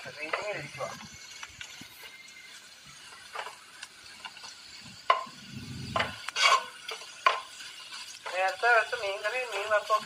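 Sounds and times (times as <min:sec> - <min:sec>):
light sizzle: 0:00.0 - 0:10.0
utensil stirring and scraping pan: 0:00.0 - 0:10.0
utensil clacking against pan: 0:00.2 - 0:00.6, 0:04.2 - 0:05.4, 0:06.0 - 0:08.9.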